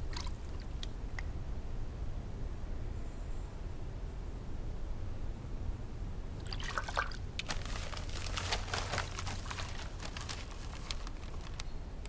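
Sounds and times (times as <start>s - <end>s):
water splashing and trickling: 0.0s - 0.9s, 6.4s - 11.5s.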